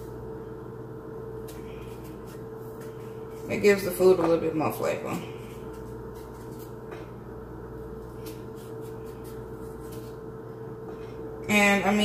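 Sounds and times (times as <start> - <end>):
steady hum: 0.0 - 12.0
knife cutting bell pepper: 1.4 - 2.9, 5.6 - 7.1, 7.9 - 10.2.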